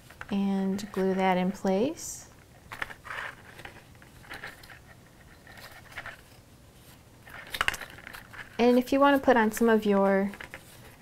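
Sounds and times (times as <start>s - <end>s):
paper rustling and tapping: 9.6s - 11.0s.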